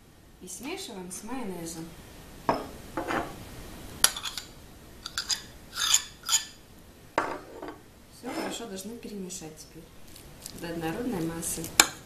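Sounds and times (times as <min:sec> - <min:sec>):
spoon scraping: 0:04.1 - 0:06.6, 0:07.2 - 0:08.6.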